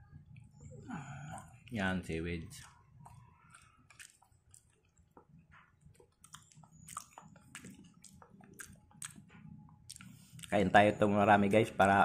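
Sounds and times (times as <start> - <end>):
close-up chewing mouth smacks: 2.6 - 10.6.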